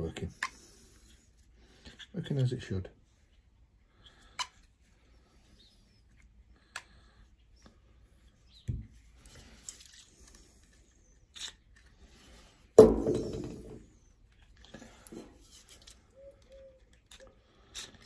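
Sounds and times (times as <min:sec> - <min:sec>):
loud knock: 0:12.8 - 0:13.8.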